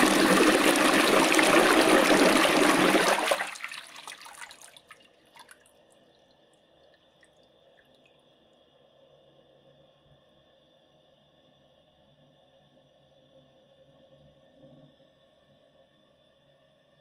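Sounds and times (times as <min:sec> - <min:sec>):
toilet flushing: 0:00.0 - 0:05.6
water trickles and drips: 0:02.3 - 0:08.2.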